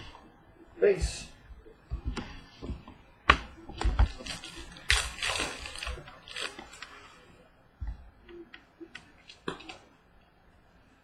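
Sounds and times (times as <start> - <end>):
cards shuffling: 3.7 - 7.1.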